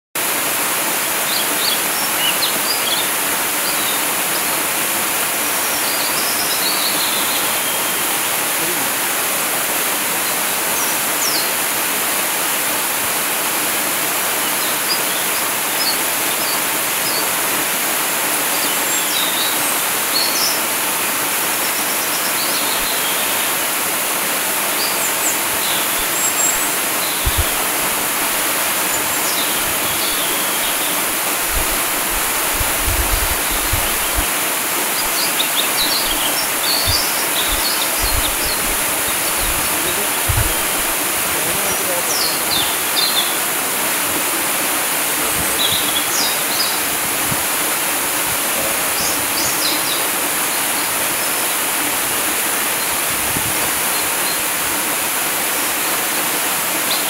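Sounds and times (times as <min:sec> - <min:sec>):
waterfall pouring onto rocks: 0:08.0 - 0:21.6, 0:22.8 - 0:57.0
bird chirps: 0:34.9 - 0:40.7.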